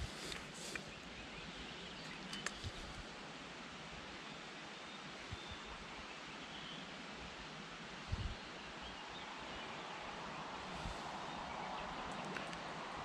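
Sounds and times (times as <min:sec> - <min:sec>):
faint outdoor hiss: 0:00.0 - 0:13.0
small clicks: 0:02.1 - 0:02.9, 0:12.1 - 0:12.7.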